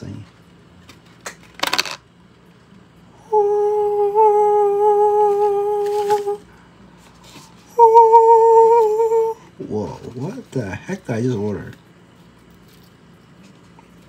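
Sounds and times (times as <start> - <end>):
person humming long notes: 3.1 - 6.5, 7.7 - 9.5.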